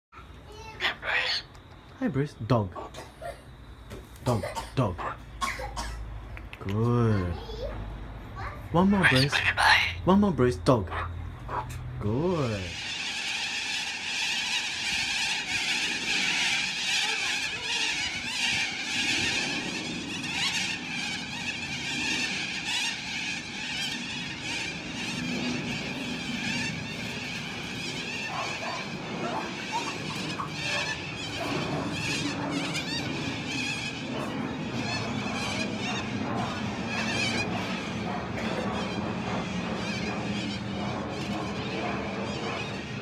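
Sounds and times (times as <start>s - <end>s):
cockatoos screeching: 0.5s - 1.9s, 8.4s - 10.1s, 10.8s - 43.0s.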